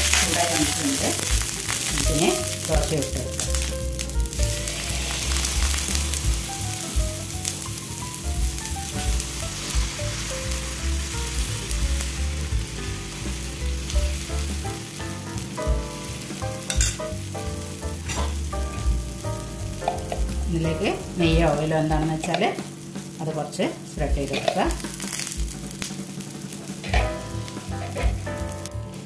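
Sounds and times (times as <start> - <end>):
batter sizzling on hot griddle: 0.0 - 29.0.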